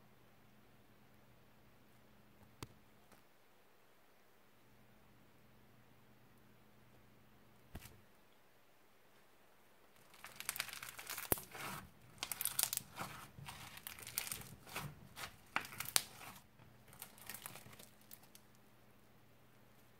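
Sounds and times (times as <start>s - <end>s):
crunchy slime crackling: 10.0s - 18.6s.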